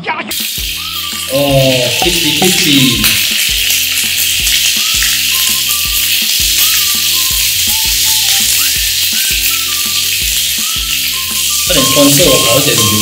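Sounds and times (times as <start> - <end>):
backing track with regular beat: 0.0 - 13.0
patty sizzling and spitting in oil: 0.3 - 13.0.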